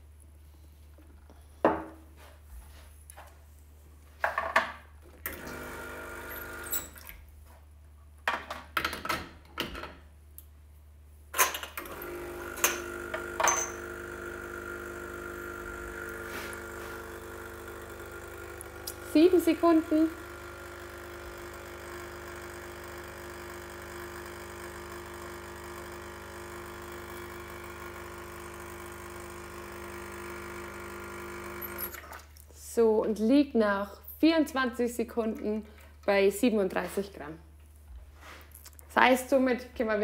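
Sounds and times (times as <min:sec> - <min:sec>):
espresso machine pump humming: 0:05.3 - 0:07.0, 0:11.8 - 0:32.0
portafilter clinks and knocks: 0:12.6 - 0:13.8.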